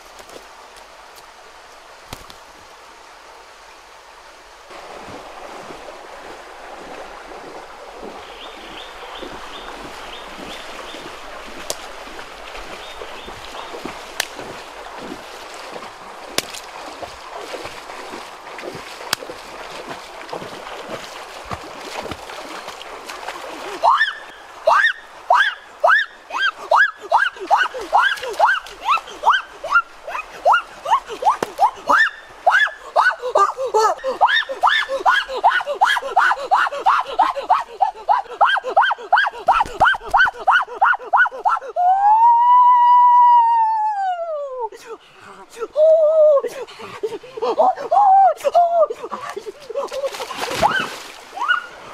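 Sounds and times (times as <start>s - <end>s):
feet splashing through water: 4.7s - 41.6s, 46.4s - 51.9s
boy laughing cries: 24.7s - 44.8s, 45.6s - 50.2s.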